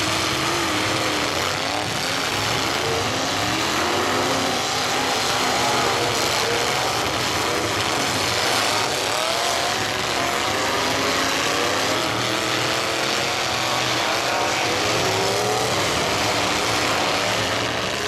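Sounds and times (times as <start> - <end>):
car engines revving together: 0.0 - 18.0.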